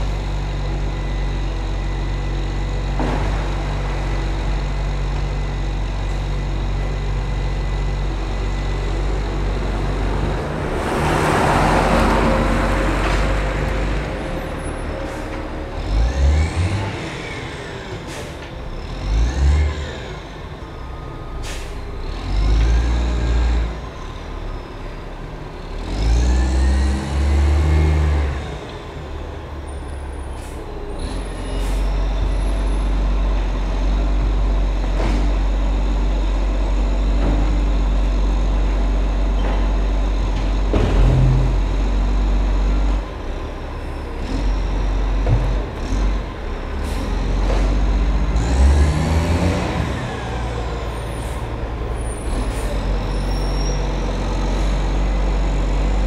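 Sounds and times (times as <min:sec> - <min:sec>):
truck engine rumbling: 0:00.0 - 0:56.0
air brakes hissing: 0:17.4 - 0:18.6, 0:21.3 - 0:21.9, 0:30.2 - 0:30.8, 0:31.4 - 0:32.1, 0:51.0 - 0:54.0.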